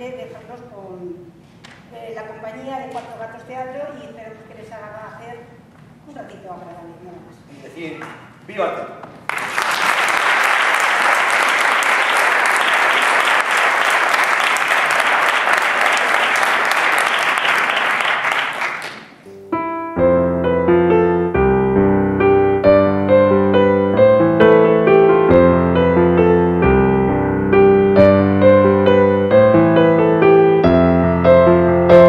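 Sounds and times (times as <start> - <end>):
audience applauding: 9.2 - 19.2
instrumental music: 19.2 - 32.0.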